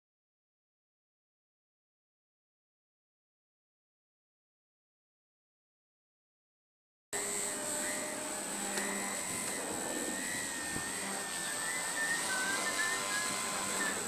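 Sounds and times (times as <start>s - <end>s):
model aircraft engine whine: 7.2s - 14.0s.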